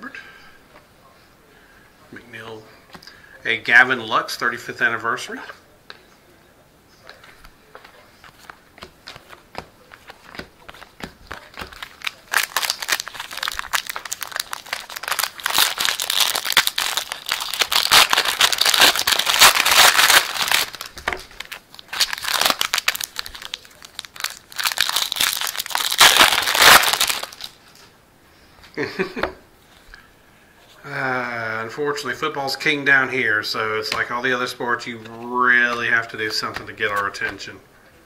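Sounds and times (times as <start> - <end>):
foil wrapper tearing and crinkling: 10.0 - 27.6.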